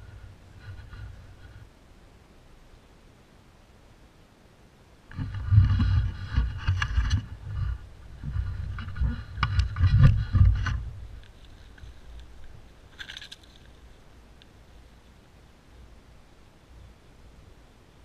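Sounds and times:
camera handling bumps and scrapes: 5.1s - 13.8s.

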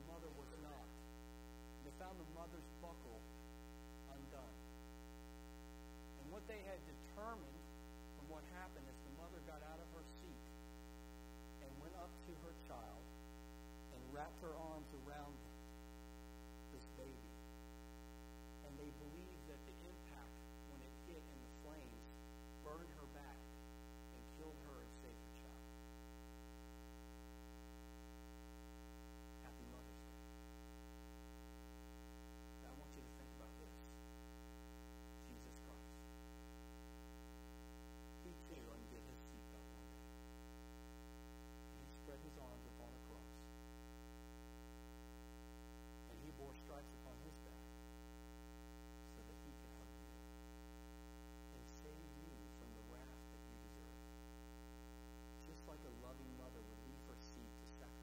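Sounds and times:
electrical mains hum: 0.0s - 58.0s
faint man's voice: 16.8s - 17.3s, 22.6s - 23.4s, 24.1s - 25.6s, 29.4s - 30.0s, 32.6s - 34.0s, 35.2s - 36.0s, 38.2s - 39.7s, 41.8s - 43.5s, 46.1s - 47.7s, 49.0s - 49.9s, 51.5s - 53.9s, 55.4s - 58.0s.

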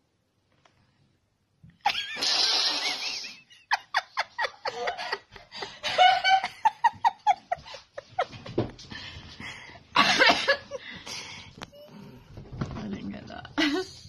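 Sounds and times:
person laughing: 1.8s - 8.6s.

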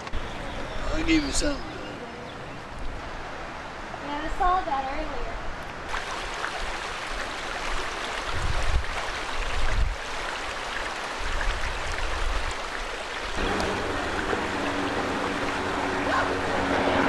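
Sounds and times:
rushing floodwater: 0.7s - 17.0s
wind buffeting microphone: 8.2s - 10.0s
steady low hum: 13.4s - 17.0s.

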